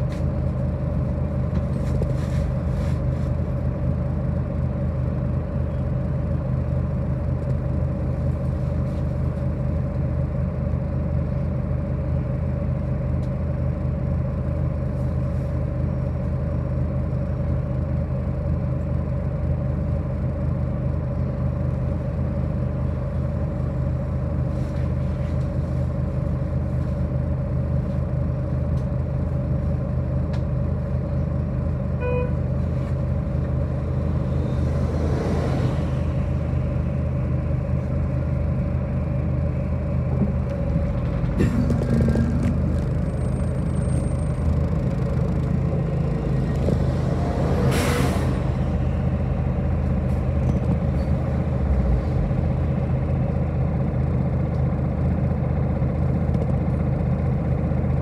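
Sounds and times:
bus engine drone: 0.0s - 58.0s
short beep: 32.0s - 32.4s.

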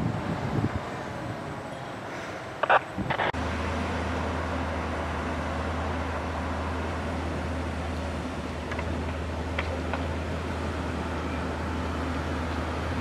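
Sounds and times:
vehicle engine running: 2.6s - 13.0s.

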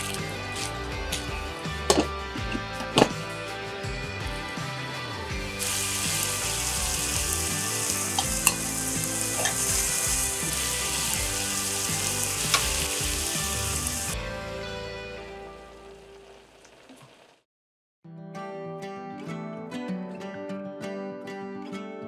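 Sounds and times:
liquid bubbling and sizzling in pan: 5.6s - 14.2s, 15.4s - 17.4s.

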